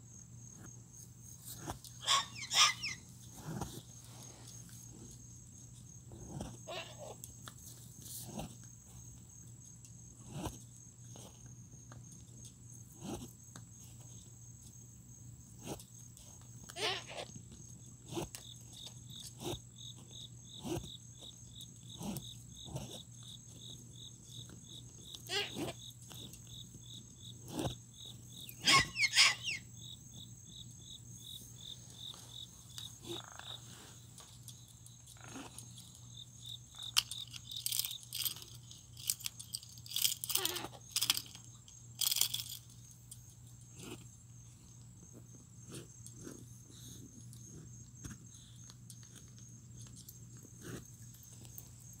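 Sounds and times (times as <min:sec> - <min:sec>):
crickets chirring: 0:00.0 - 0:52.0
pet birds calling: 0:01.6 - 0:03.6, 0:06.3 - 0:07.2, 0:16.7 - 0:17.3, 0:24.8 - 0:30.0.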